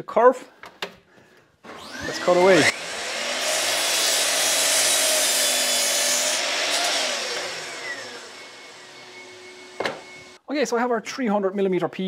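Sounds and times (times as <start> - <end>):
mitre saw cutting wood: 1.7 - 10.4.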